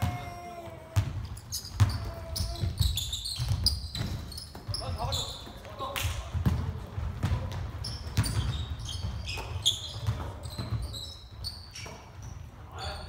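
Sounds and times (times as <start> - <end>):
basketball bouncing: 0.0 - 5.0, 6.2 - 11.0
sneakers squeaking: 0.0 - 13.0.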